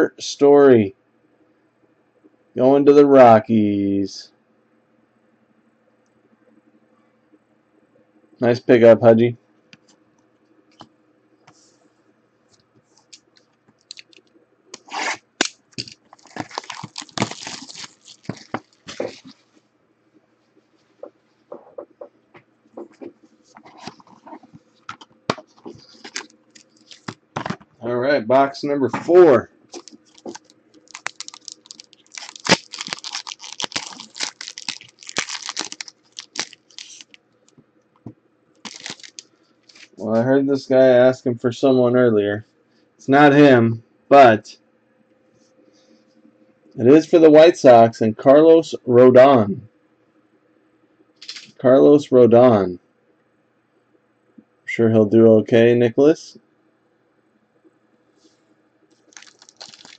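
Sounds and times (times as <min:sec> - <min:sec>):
plastic wrap crinkling and tearing: 0:15.4 - 0:19.3, 0:25.8 - 0:27.2, 0:29.7 - 0:37.2, 0:38.6 - 0:40.0, 0:59.0 - 0:59.9.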